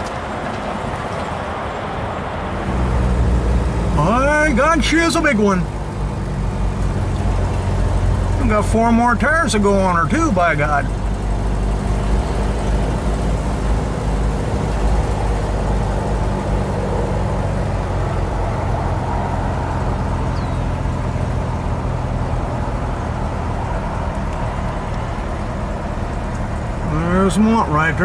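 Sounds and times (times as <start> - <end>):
car engine and tyre noise: 0.0 - 28.0.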